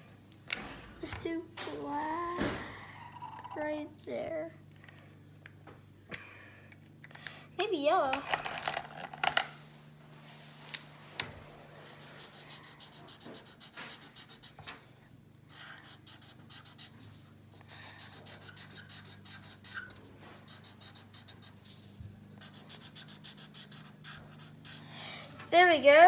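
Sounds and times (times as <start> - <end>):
marker scratching on paper: 11.8 - 14.9, 15.5 - 25.7.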